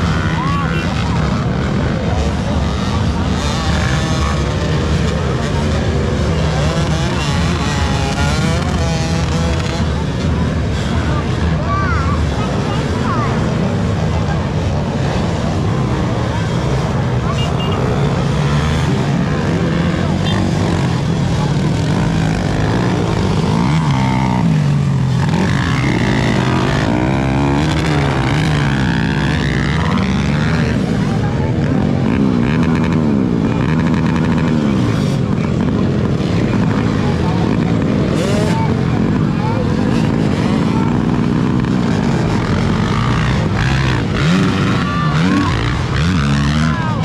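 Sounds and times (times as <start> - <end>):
dirt bike engines revving: 0.0 - 47.0.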